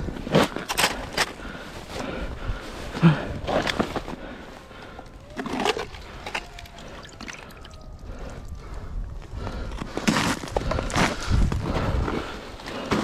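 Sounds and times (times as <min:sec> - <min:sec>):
water and slush splashing: 0:05.4 - 0:07.6.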